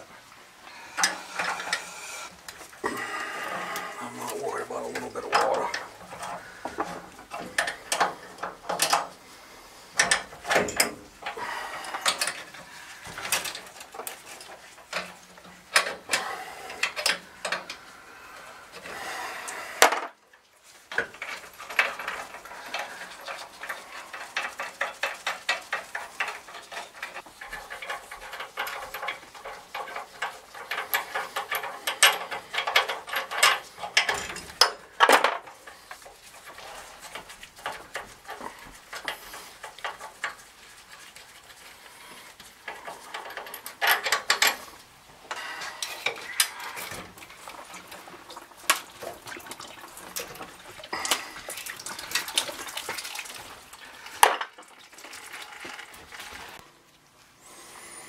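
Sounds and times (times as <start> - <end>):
metal tools clanking and scraping: 1.0 - 9.2, 9.9 - 17.8, 20.9 - 40.4, 42.2 - 48.2.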